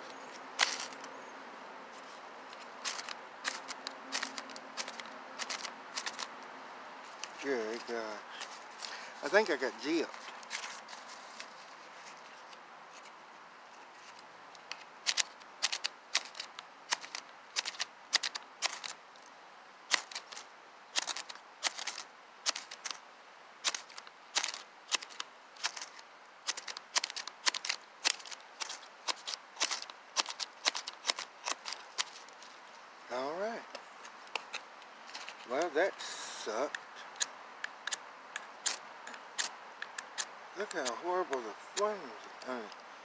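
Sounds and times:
knife scraping fire-starter rod: 2.0s - 6.3s, 13.8s - 19.0s, 19.9s - 23.0s, 23.6s - 32.6s, 34.0s - 42.8s.

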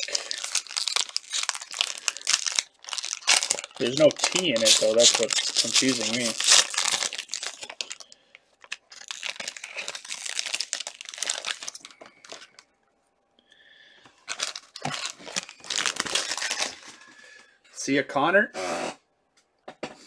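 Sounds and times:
foil wrapper tearing and crinkling: 0.0s - 12.6s, 14.2s - 17.0s.

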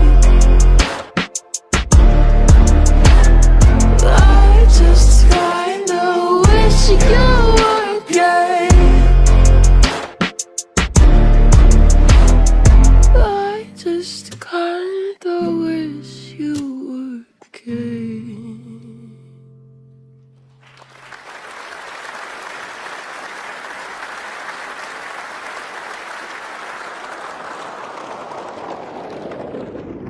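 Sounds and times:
slowed pop singing: 0.0s - 13.6s
slowed audience applause: 20.6s - 30.0s.

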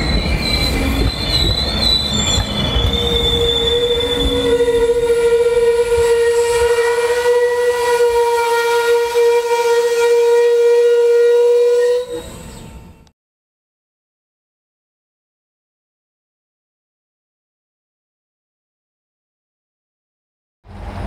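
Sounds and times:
train wheels squealing: 0.0s - 6.7s, 11.6s - 13.0s.

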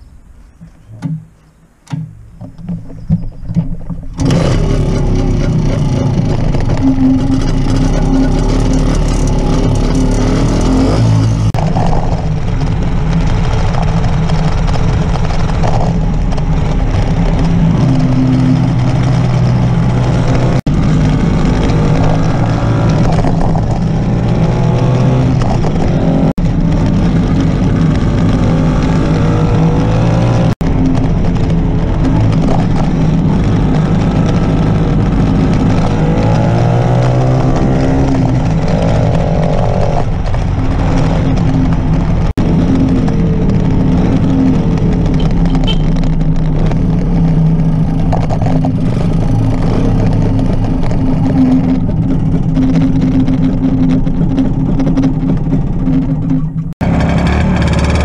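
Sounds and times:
knocks: 0.6s - 4.2s
motorcycle engine running: 1.9s - 58.0s.

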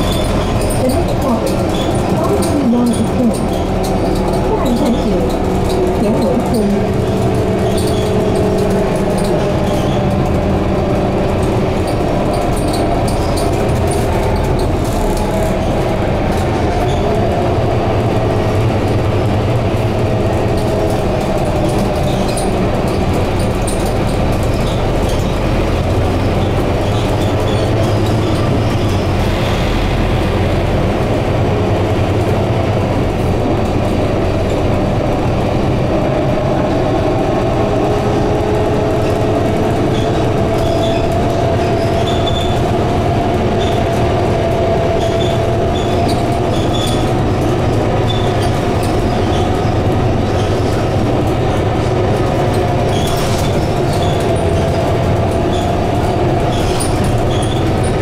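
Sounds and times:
bus engine drone: 0.0s - 58.0s
light cabin rattles: 0.0s - 58.0s
road noise: 0.0s - 58.0s.

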